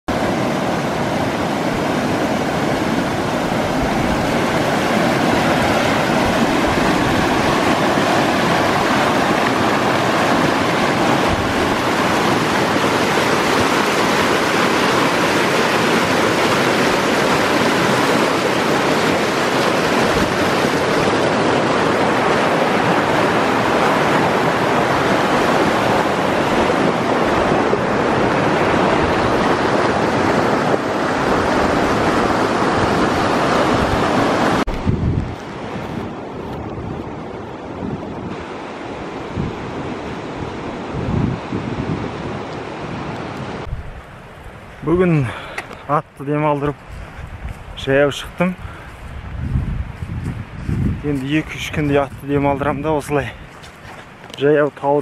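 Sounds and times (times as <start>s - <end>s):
mountain stream rushing: 0.1s - 55.0s.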